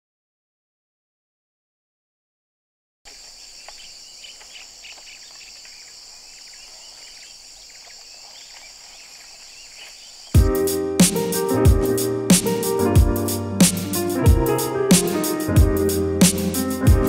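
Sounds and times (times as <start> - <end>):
small birds chirping: 3.1 - 14.6.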